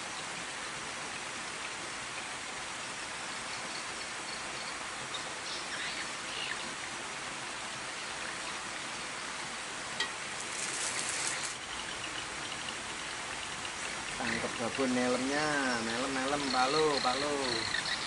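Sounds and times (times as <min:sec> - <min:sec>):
faint bird chirps: 0:03.3 - 0:06.8, 0:13.4 - 0:18.0
short high rattling burst: 0:10.4 - 0:11.6.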